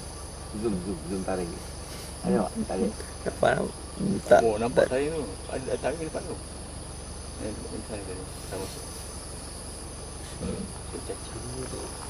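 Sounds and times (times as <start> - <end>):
insects high-pitched drone: 0.0 - 12.0
lower insect trill: 0.0 - 12.0
soft murmured voices: 0.6 - 6.3, 10.3 - 12.0.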